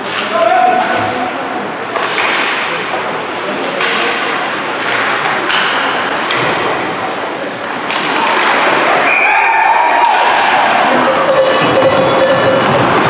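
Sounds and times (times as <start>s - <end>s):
crowd chatter: 0.0s - 13.0s
hockey sticks and puck clacking: 1.9s - 9.0s, 10.2s - 13.0s
held tone: 10.6s - 13.0s.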